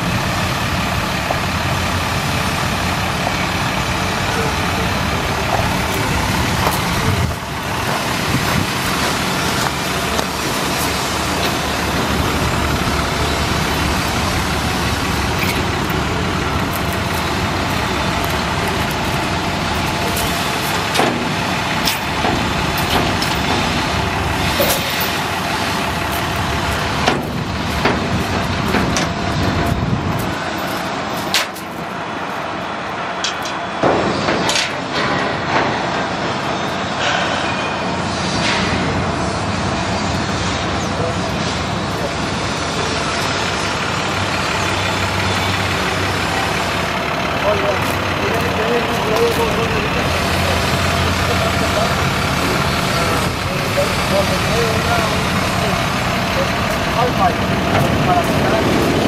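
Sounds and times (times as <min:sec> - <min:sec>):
diesel engine idling: 0:00.0 - 0:59.0
metal clanks and rattles: 0:15.1 - 0:17.2, 0:18.8 - 0:31.9, 0:33.2 - 0:37.8.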